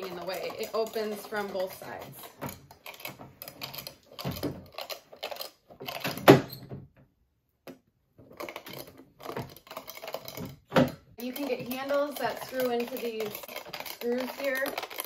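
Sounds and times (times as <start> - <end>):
metal grate door clicking and clacking: 0.0 - 6.8.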